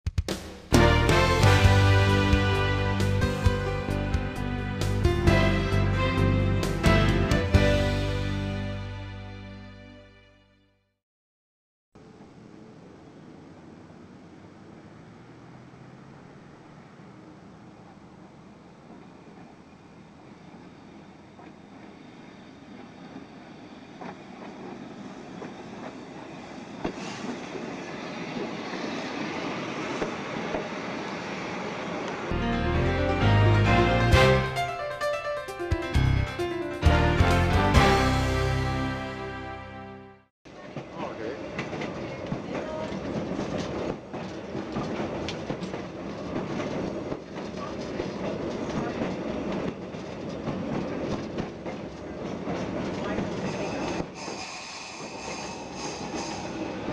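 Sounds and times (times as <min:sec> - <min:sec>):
streetcar wheels on rails: 0:12.0 - 0:38.5, 0:40.5 - 0:56.9
wheels clicking over rail joints: 0:40.6 - 0:54.2.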